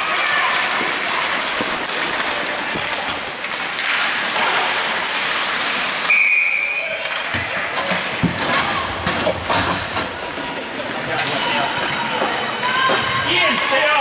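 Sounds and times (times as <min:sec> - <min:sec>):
ice rink hiss: 0:03.4 - 0:07.0
referee's whistle blast: 0:06.1 - 0:06.8.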